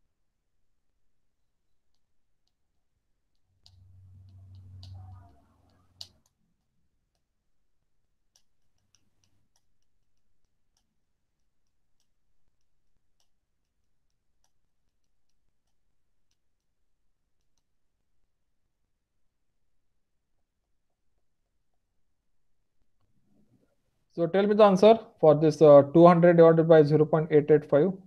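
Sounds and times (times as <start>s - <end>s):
faint irregular clicks: 1.0s - 24.1s
low hum: 3.5s - 6.2s.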